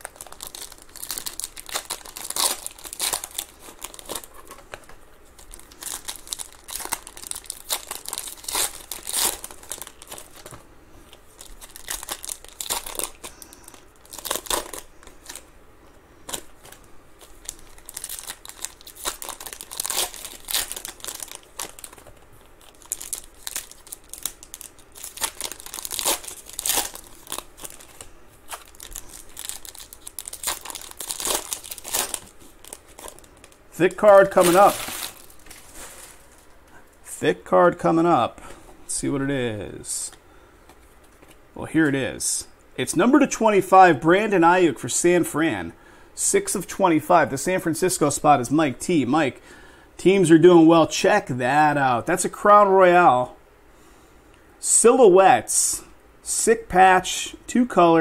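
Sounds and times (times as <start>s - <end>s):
foil wrappers tearing and crinkling: 0.0s - 4.6s, 5.4s - 10.6s, 11.2s - 15.4s, 16.2s - 36.5s.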